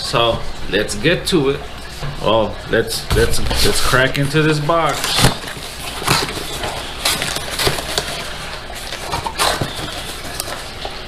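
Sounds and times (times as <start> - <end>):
cardboard knocks and crinkles: 3.1 - 11.0
cardboard box flaps rustling: 4.9 - 10.8.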